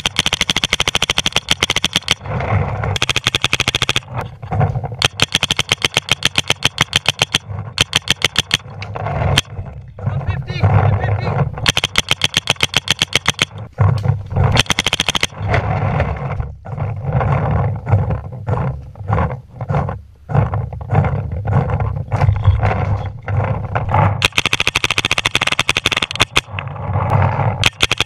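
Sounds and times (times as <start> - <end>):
paintball marker firing rapidly: 0.0 - 2.3, 2.9 - 4.2, 5.0 - 8.7, 11.6 - 13.7, 14.5 - 15.4, 24.2 - 26.5, 27.6 - 28.0.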